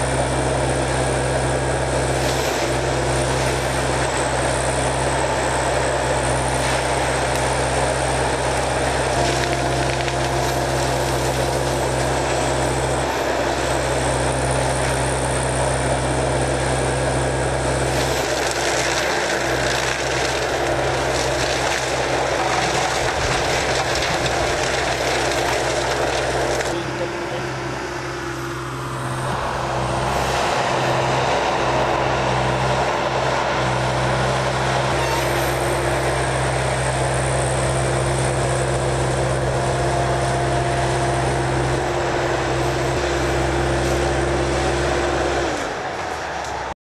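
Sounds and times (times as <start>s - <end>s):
mulcher grinding and chopping: 0.0s - 46.7s
diesel engine running hard: 0.0s - 46.8s.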